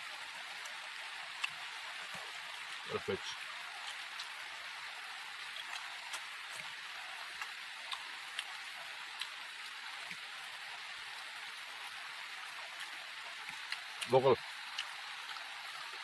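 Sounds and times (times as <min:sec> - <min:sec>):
background hiss: 0:00.0 - 0:16.0
chewing smacks and clicks: 0:00.6 - 0:02.8, 0:03.8 - 0:04.4, 0:05.5 - 0:08.6, 0:09.2 - 0:09.4, 0:12.8 - 0:15.5.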